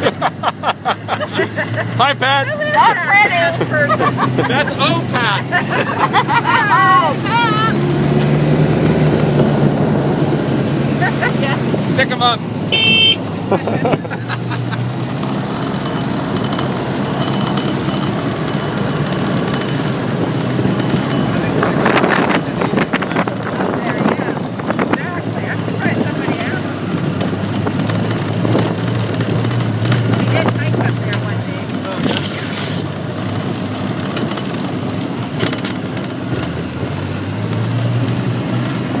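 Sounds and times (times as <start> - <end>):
off-road vehicle engine running: 0.0 - 39.0
wind noise: 20.1 - 29.4
rattles and knocks from bumps: 26.8 - 32.2, 33.2 - 38.8.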